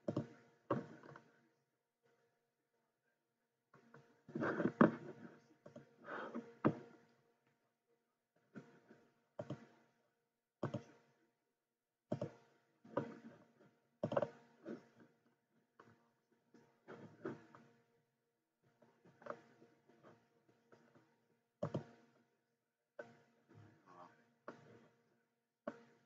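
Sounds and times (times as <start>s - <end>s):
knocks and clicks: 0.0s - 1.2s, 8.6s - 9.8s, 10.6s - 11.1s, 12.1s - 13.4s, 14.0s - 14.9s, 19.0s - 22.1s.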